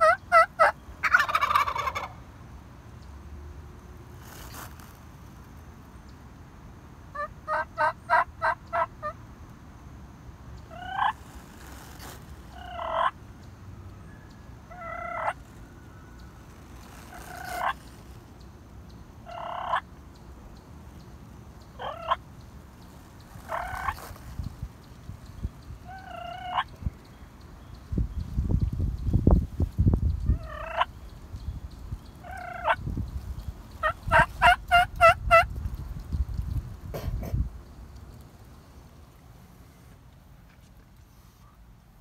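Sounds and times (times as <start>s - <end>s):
short rising turkey calls: 0.0s - 2.2s, 12.5s - 13.2s, 16.8s - 17.8s, 21.8s - 22.2s
turkey gobbling: 0.0s - 2.2s, 7.1s - 9.2s, 10.7s - 11.2s, 12.5s - 13.2s, 14.7s - 15.4s, 17.0s - 17.8s, 19.3s - 19.9s, 21.8s - 22.2s, 23.4s - 24.1s, 25.8s - 26.7s, 30.3s - 30.9s, 32.2s - 32.8s, 33.8s - 35.5s.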